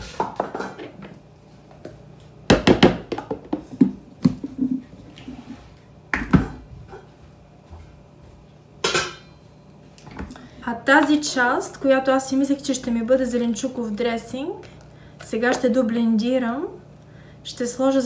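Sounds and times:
dishes knocking and clinking: 0.1s - 1.1s, 6.1s - 7.2s, 8.8s - 9.4s.

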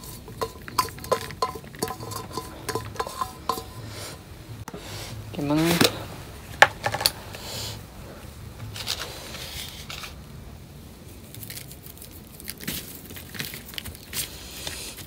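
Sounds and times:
hands handling food: 11.1s - 15.0s.

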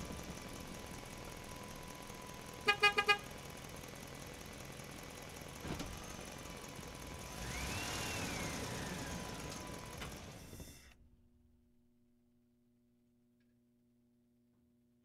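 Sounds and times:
rumble: 0.0s - 2.6s
vehicle horn toots: 2.6s - 3.3s.

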